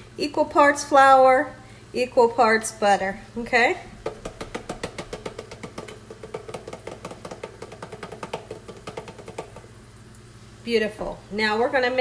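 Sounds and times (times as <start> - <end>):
hand tapping a plastic cup: 4.0 - 9.7.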